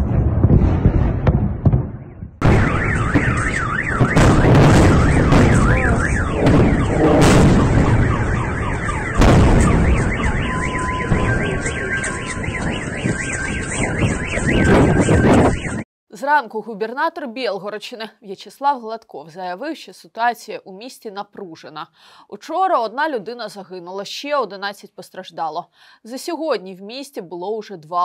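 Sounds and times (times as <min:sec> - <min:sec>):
air-defence fire: 0:00.0 - 0:15.4
explosions: 0:00.0 - 0:15.8
loud bangs: 0:00.0 - 0:15.8
car alarms wailing: 0:02.4 - 0:15.8.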